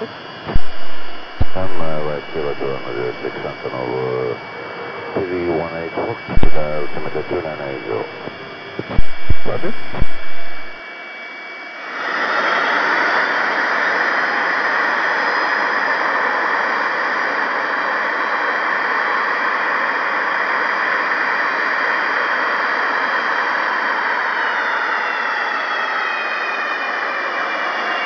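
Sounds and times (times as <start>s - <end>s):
faint high whine: 0.0s - 19.4s
jet engines running: 0.0s - 28.0s.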